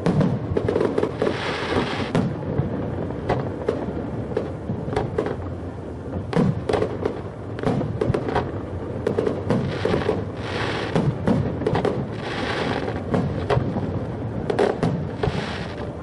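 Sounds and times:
firework crackle: 0.0s - 16.0s
firework shells bursting: 6.3s - 13.9s.

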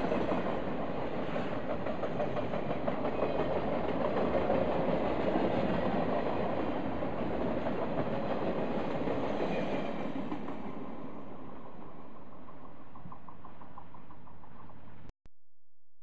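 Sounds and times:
train wheels rolling on rails: 0.0s - 15.0s.

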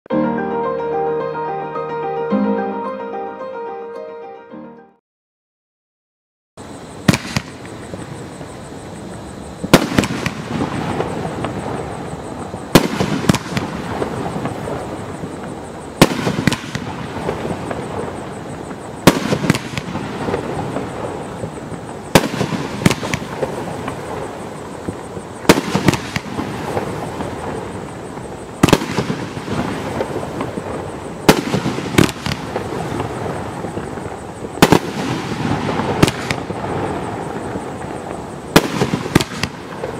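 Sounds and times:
smaller firework report: 6.6s - 39.9s
firework crackling: 6.8s - 39.9s
firework shots: 7.0s - 8.4s, 9.6s - 39.9s.

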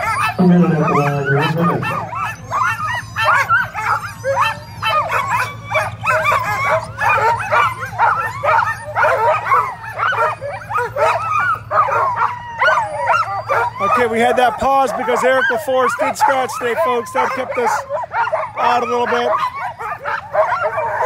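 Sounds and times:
sled dogs yelping and barking: 0.0s - 21.0s
steady low hum: 0.3s - 3.0s.

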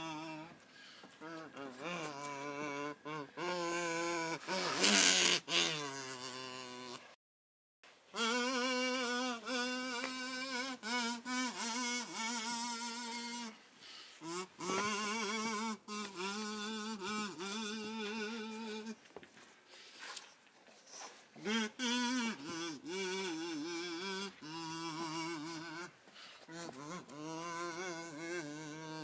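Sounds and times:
slow melody sung with vibrato: 0.0s - 0.6s, 21.4s - 29.0s.

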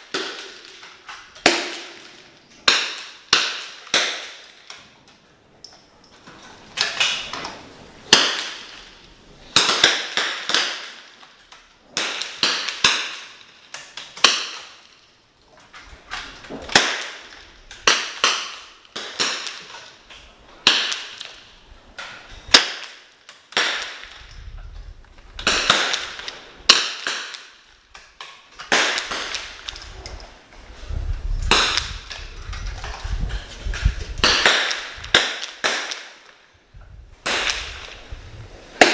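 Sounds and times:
rifle shots with echo: 25.4s - 27.6s, 28.6s - 29.7s, 34.2s - 36.4s, 37.2s - 38.0s.

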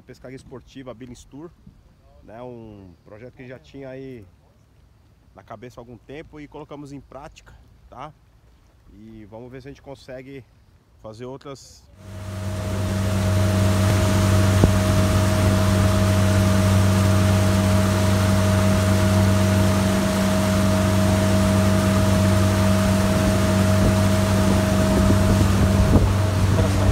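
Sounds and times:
boat engine humming: 12.0s - 26.9s
water rushing past hull: 12.0s - 26.9s
wind noise: 12.1s - 26.9s.

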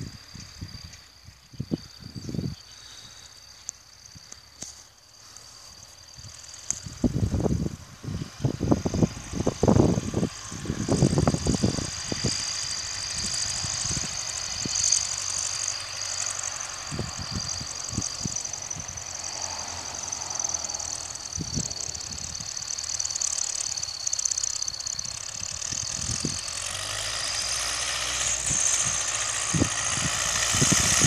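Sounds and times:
wind buffeting microphone: 0.0s - 2.9s, 6.2s - 16.1s, 16.7s - 23.0s, 24.6s - 26.7s, 28.0s - 31.0s
distant tractor diesel engine: 0.0s - 31.0s.

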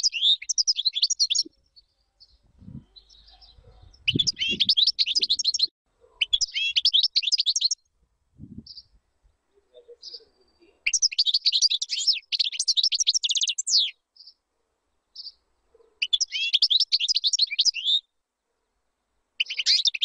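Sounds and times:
goldfinch twittering trills: 3.0s - 5.7s.

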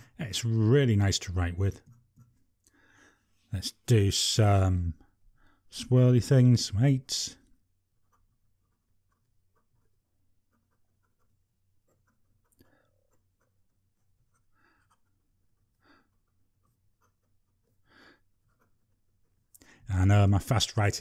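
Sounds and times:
fountain pen scratching on paper: 1.7s - 2.6s, 7.8s - 19.5s.

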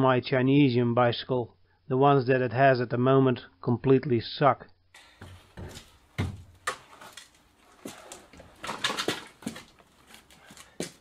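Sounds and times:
clog footsteps on concrete: 5.0s - 11.0s
bicycle being wheeled: 6.8s - 10.6s.

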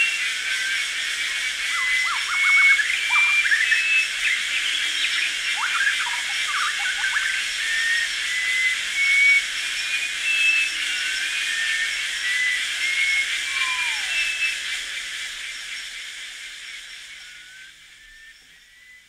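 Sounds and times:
insect hiss: 0.0s - 19.0s
rising and falling chirps: 11.4s - 14.6s.

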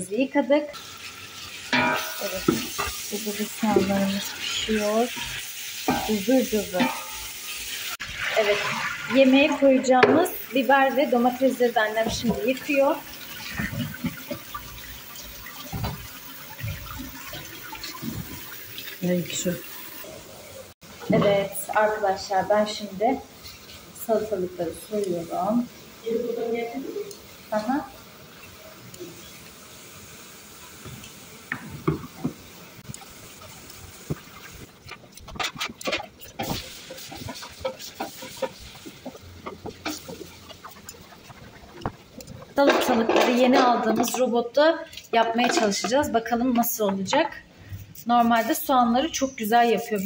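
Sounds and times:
tap water running into sink: 0.8s - 20.0s, 30.5s - 44.2s
water splashing: 1.0s - 21.4s, 30.6s - 43.3s.

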